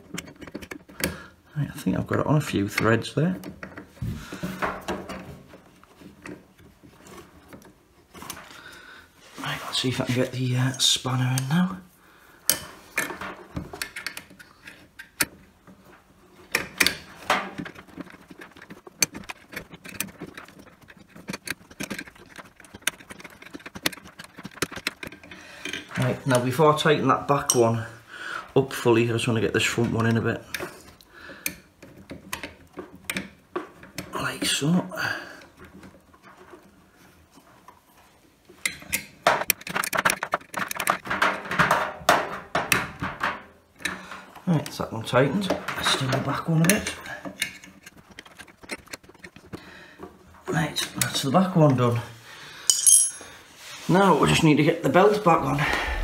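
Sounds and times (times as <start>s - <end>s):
metal spanner clinking on bolt: 52.7s - 53.3s.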